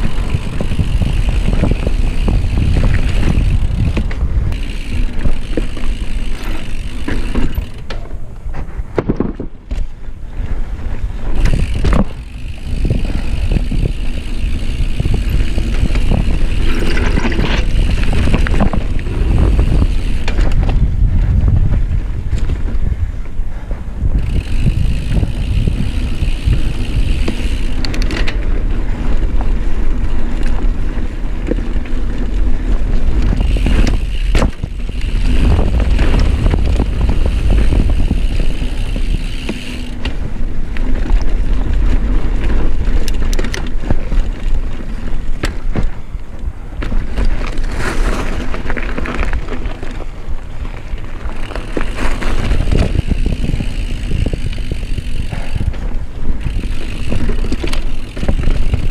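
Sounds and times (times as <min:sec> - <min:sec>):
high whir: 0:00.0 - 0:08.8, 0:11.0 - 0:21.0, 0:32.4 - 0:41.4, 0:51.0 - 0:58.9
tyres rolling over dirt: 0:00.0 - 0:21.0, 0:24.2 - 0:58.9
bike rattles and clacks: 0:00.0 - 0:58.9
wind on microphone: 0:00.0 - 0:58.9.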